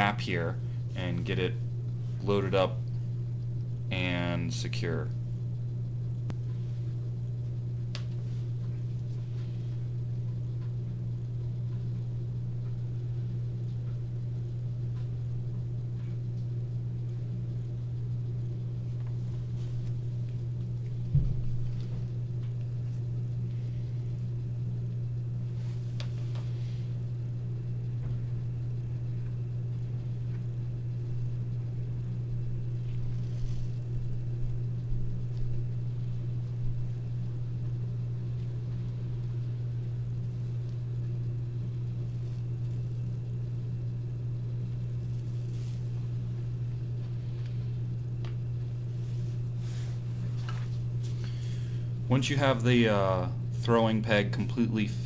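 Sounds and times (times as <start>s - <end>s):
low room hum: 0.0s - 55.0s
thump: 21.1s - 21.5s
faint handling rustles: 32.8s - 33.9s, 45.0s - 46.4s, 48.9s - 51.7s.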